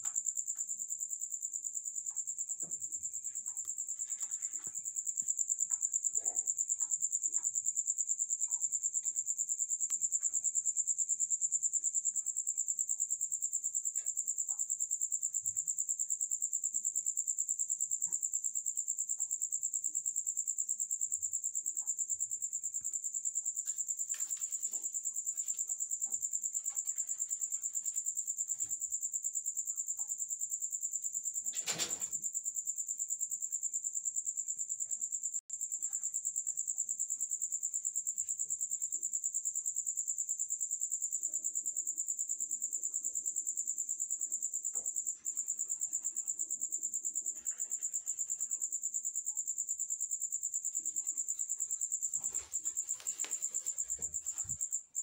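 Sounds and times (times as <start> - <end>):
crickets trilling: 0.0 - 55.0.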